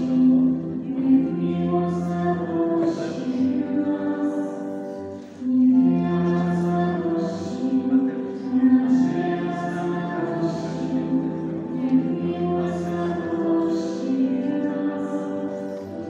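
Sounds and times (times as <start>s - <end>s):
choir singing a slow hymn: 0.0s - 16.0s.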